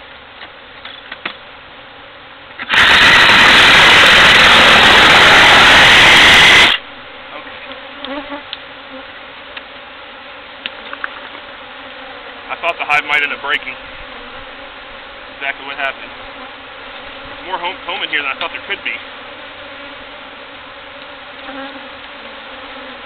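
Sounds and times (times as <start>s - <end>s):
honeybees buzzing: 0.0s - 23.0s
reciprocating saw cutting: 2.6s - 6.8s.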